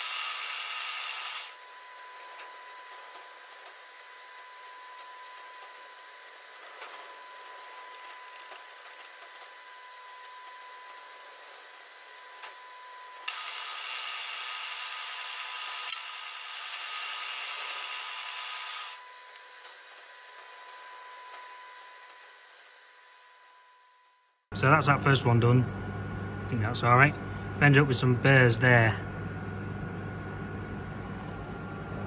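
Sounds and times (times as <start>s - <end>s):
milling machine spindle humming: 0.0s - 21.0s.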